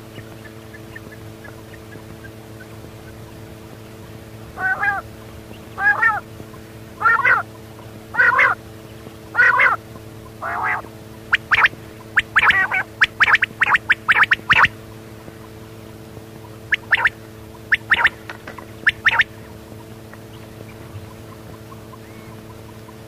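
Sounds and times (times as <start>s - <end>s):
quail calling: 0.0s - 3.5s, 4.4s - 14.8s, 16.3s - 23.0s
low hum: 0.0s - 23.0s.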